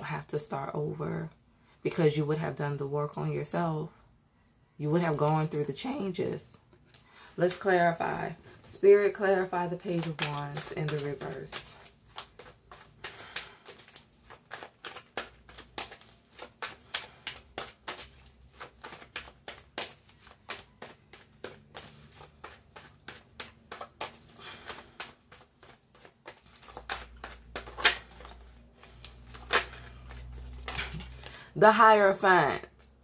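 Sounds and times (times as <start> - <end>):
cards being shuffled: 6.8 - 31.4
cards slapping: 9.5 - 31.4.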